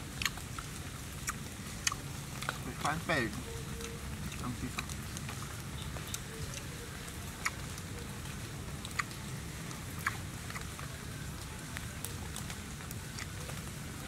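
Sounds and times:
crunchy biting and chewing: 0.1s - 8.0s, 8.8s - 9.2s, 9.8s - 11.0s, 12.3s - 13.7s.

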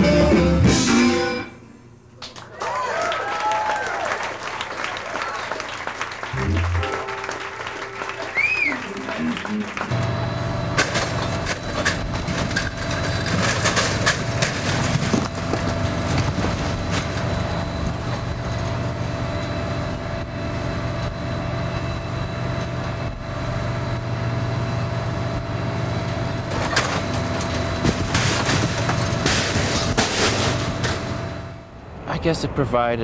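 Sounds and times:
crane engine humming: 3.7s - 33.0s
debris crashing: 10.7s - 18.9s, 26.4s - 31.5s.

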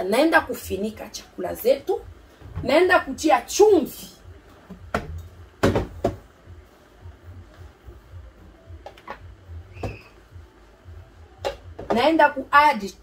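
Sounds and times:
cupboard knocks and clunks: 4.9s - 6.3s.

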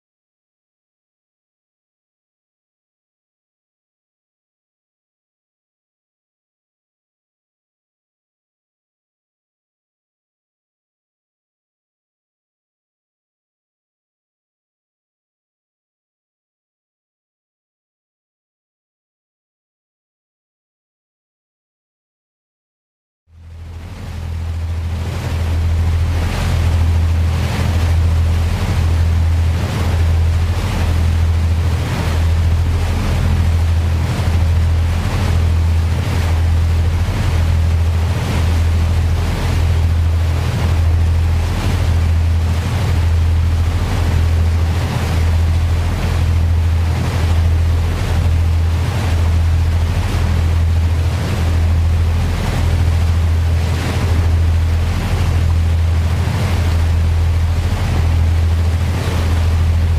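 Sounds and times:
boat engine droning: 23.3s - 59.9s
churning water of wake: 23.3s - 59.9s
wind buffeting microphone: 23.7s - 59.9s.

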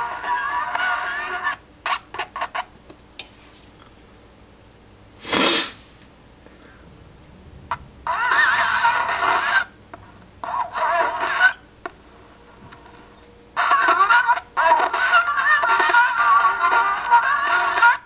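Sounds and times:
scratchy warbling record music: 0.0s - 2.6s, 7.7s - 9.8s, 10.4s - 11.6s, 13.6s - 18.0s.

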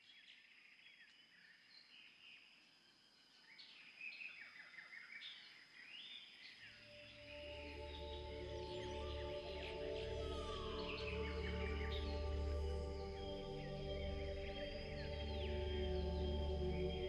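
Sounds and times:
birds chirping: 3.6s - 17.0s
thin steady high tone: 6.8s - 17.0s
low music: 6.9s - 17.0s.

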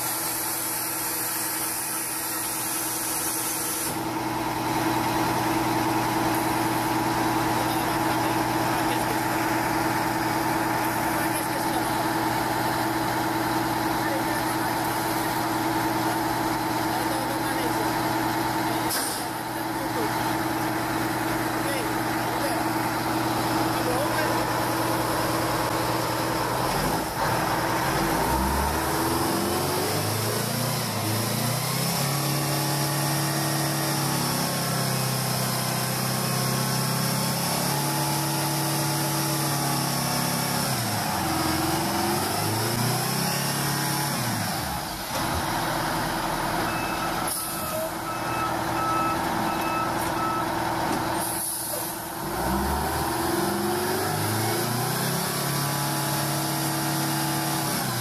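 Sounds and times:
short air hisses: 0.0s - 4.1s, 51.2s - 52.0s
diesel truck engine revving: 0.0s - 58.0s.

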